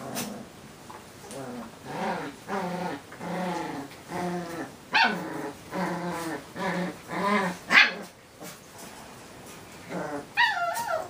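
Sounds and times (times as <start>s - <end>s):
dogs growl-whining: 1.2s - 8.6s, 9.8s - 11.0s
dog yelping: 10.4s - 11.0s.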